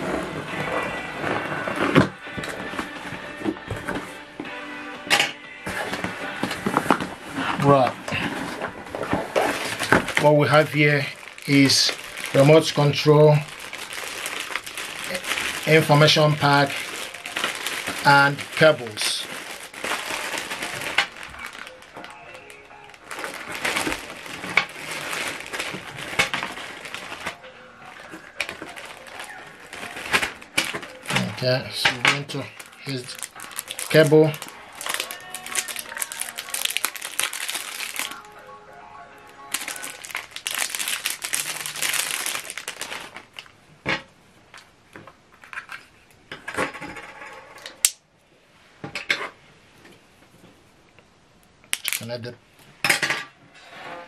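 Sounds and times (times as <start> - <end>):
plastic bag crinkling: 6.5 - 38.4, 39.4 - 43.6, 51.7 - 52.2.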